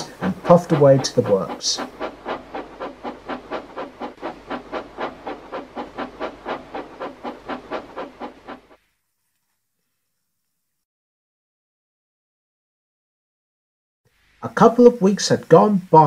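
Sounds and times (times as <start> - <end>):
steam locomotive chuffing: 0.0 - 8.8.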